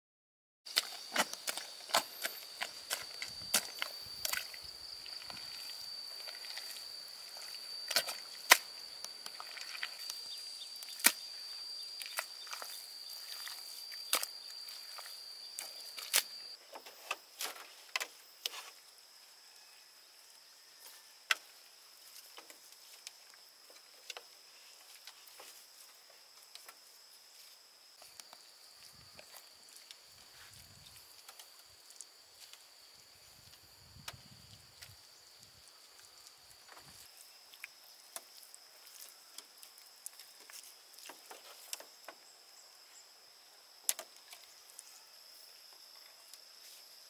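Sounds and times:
hands scooping dry soil: 0.7s - 16.9s
steady high-pitched tone: 1.8s - 16.6s.

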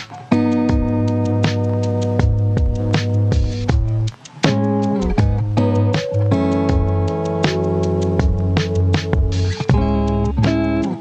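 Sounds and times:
plucked guitar notes: 0.0s - 11.0s
held chord: 4.9s - 11.0s.

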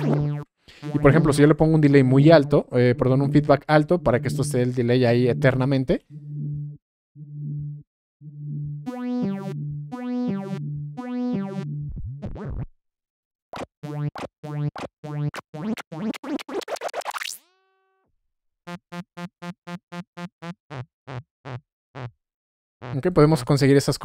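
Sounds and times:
synth notes with repeating echoes: 0.0s - 12.4s.

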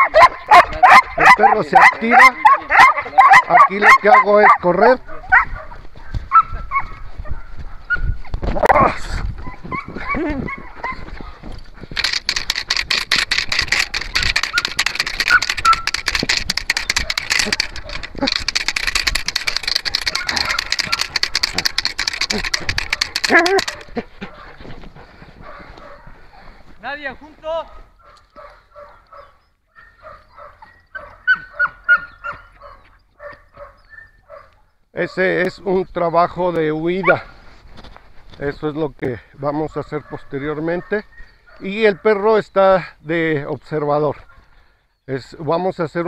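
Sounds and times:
dog yelping sharply: 0.0s - 4.6s, 6.3s - 7.0s, 19.8s - 21.6s, 28.8s - 34.5s
dog barking rapidly: 0.0s - 8.1s, 13.7s - 24.6s, 25.4s - 26.4s, 27.7s - 35.2s, 37.0s - 37.3s, 39.7s - 42.1s
dog whining and yipping: 6.3s - 7.0s, 9.4s - 11.2s, 14.1s - 16.0s, 29.8s - 34.5s
fast rasping strokes: 12.0s - 24.1s.

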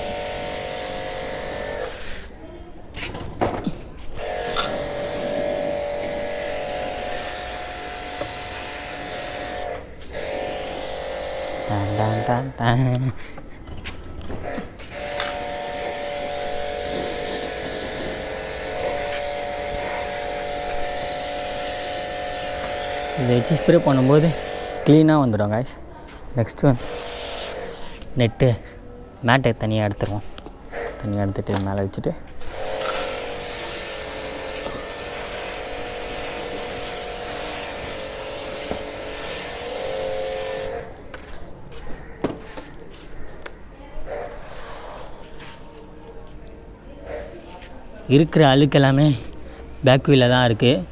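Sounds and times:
pressure washer motor humming: 0.0s - 1.9s, 4.2s - 12.4s, 14.9s - 24.9s, 26.8s - 27.6s, 32.5s - 40.8s
water jet spraying: 15.0s - 24.9s, 32.5s - 40.8s.

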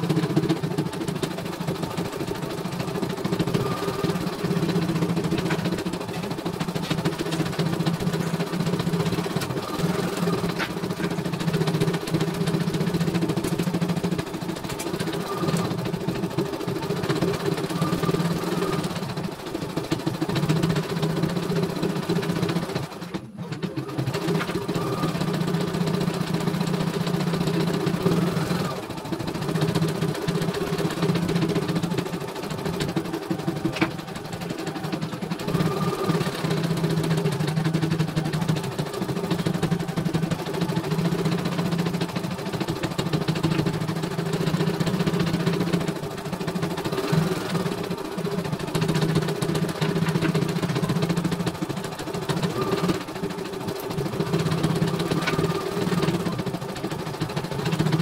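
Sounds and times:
embroidery machine clatter and hum: 0.0s - 58.0s.

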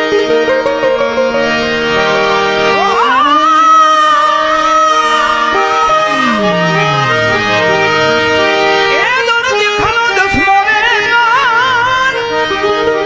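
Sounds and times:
harmonium chords: 0.0s - 13.0s
person singing with vibrato: 2.7s - 8.4s.

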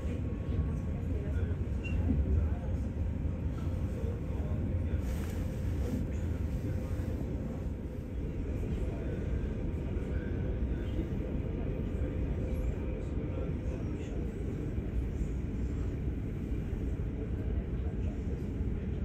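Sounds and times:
train rumbling: 0.0s - 19.0s.

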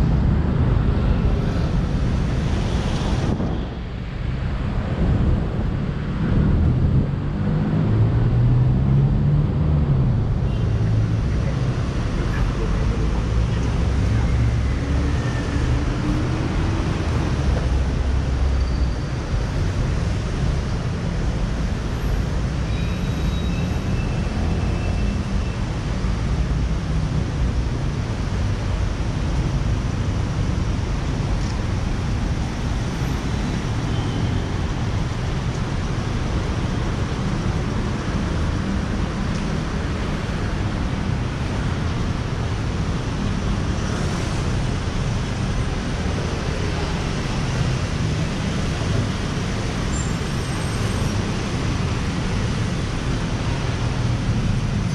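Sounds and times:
road traffic rumble: 0.0s - 54.9s.

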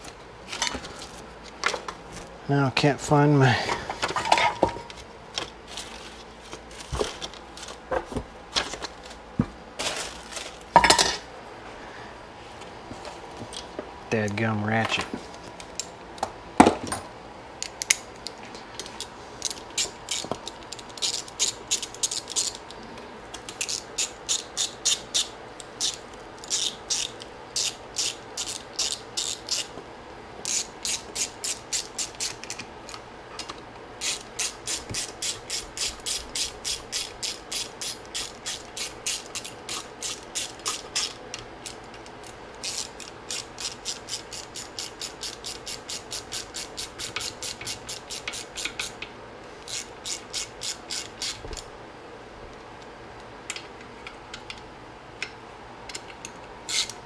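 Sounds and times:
hand ratchet clicking: 23.5s - 29.7s, 30.4s - 32.6s, 34.0s - 49.0s, 49.7s - 51.4s, 56.7s - 57.0s.

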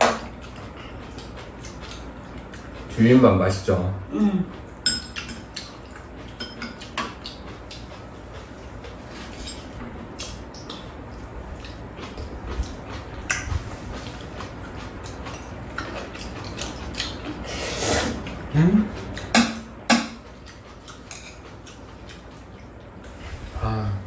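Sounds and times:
slurping and chewing noodles: 10.1s - 19.3s.

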